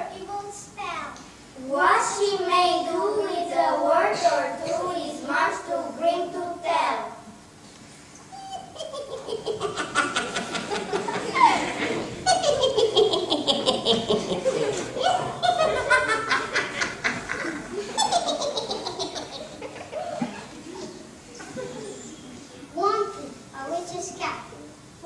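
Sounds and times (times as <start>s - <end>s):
witch cackling laughter: 8.4s - 20.5s.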